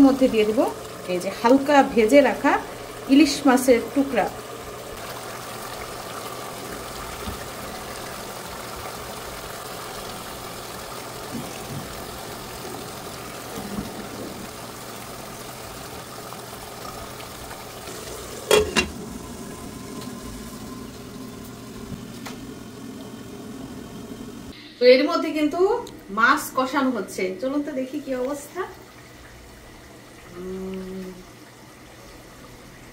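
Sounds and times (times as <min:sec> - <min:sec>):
fish sizzling in a pot: 0:00.0 - 0:24.6.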